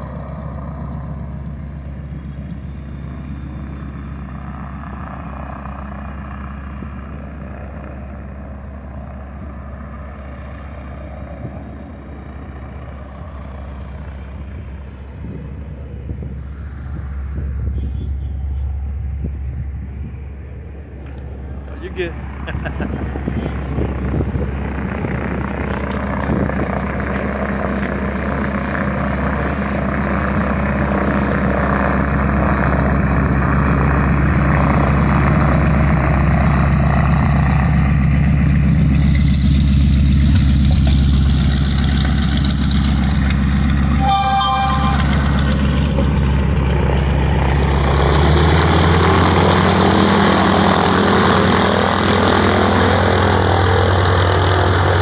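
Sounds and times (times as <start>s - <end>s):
radial aircraft engine idling: 0.0s - 55.0s
high squeal: 43.9s - 45.6s.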